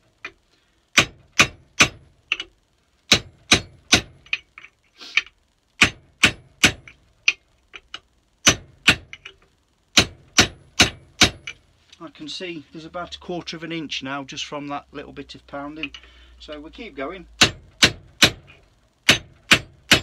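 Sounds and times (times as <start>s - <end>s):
hammer striking metal: 0.9s - 2.4s, 3.1s - 4.4s, 10.0s - 11.6s, 17.4s - 20.0s.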